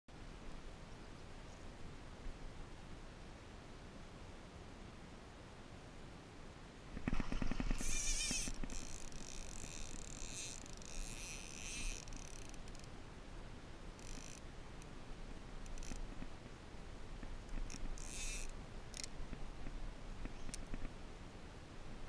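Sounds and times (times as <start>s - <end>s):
fishing line buzzing off reel: 7.0s - 12.9s, 14.0s - 14.4s, 15.6s - 16.1s, 17.6s - 19.1s.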